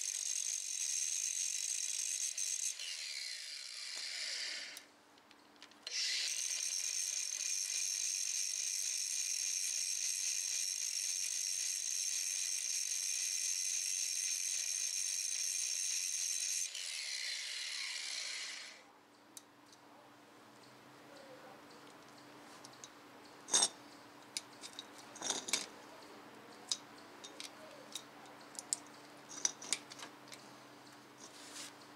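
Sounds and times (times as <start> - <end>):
angle grinder cutting steel: 0.0 - 4.8, 5.9 - 18.8.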